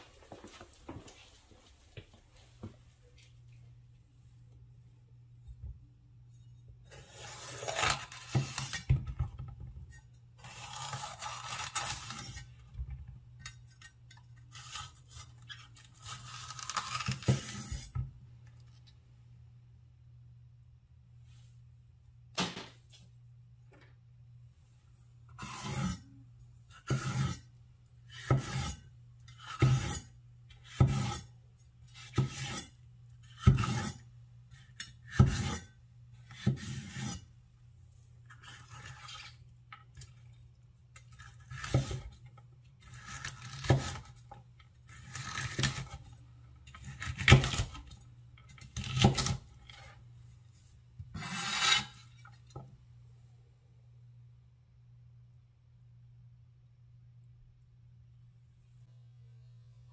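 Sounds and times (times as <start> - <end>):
faint low hum: 0.0 - 16.9, 17.8 - 26.8, 52.1 - 59.9
knife slicing pepper on board: 26.9 - 27.4, 28.2 - 28.8, 30.6 - 31.2, 33.3 - 34.0, 35.1 - 35.6.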